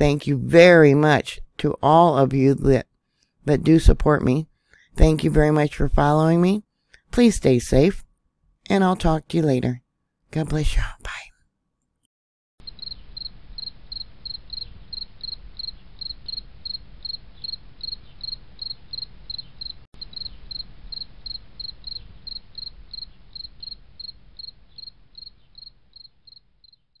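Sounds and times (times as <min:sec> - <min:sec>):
insect chirping: 0:12.6 - 0:27.0.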